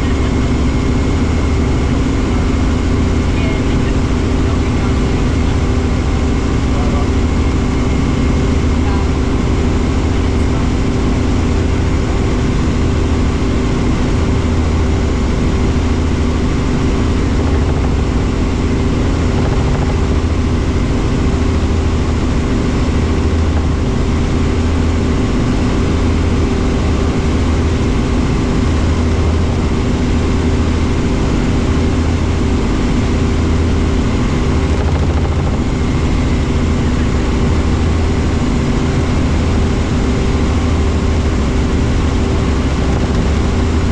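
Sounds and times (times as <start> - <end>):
helicopter engine and rotor drone: 0.0 - 43.9.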